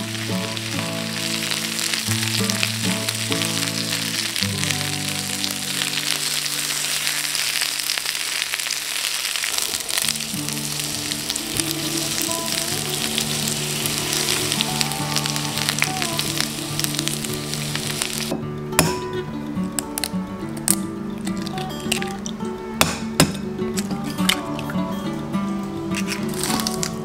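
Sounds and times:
background music: 0:00.0 - 0:08.1, 0:09.9 - 0:27.0
potato slices sizzling in oil: 0:00.0 - 0:18.3, 0:26.0 - 0:27.0.

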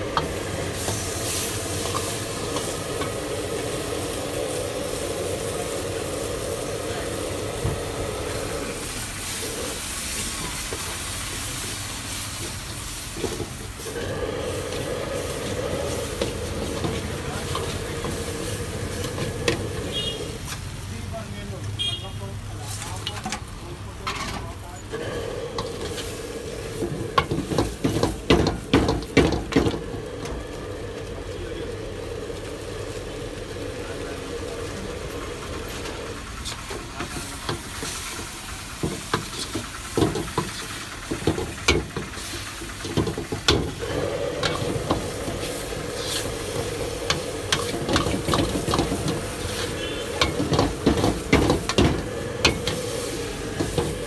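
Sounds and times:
food sizzling: 0:00.0 - 0:54.0
metal ladle scraping wok: 0:11.8 - 0:20.6, 0:24.1 - 0:29.6, 0:35.6 - 0:54.0.

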